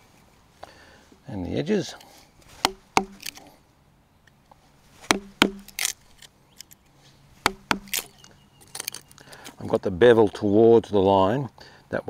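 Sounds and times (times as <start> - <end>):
mallet striking a chisel: 2.6 - 3.3, 5.1 - 5.9, 7.4 - 8.1
chisel scraping wood: 7.4 - 8.3.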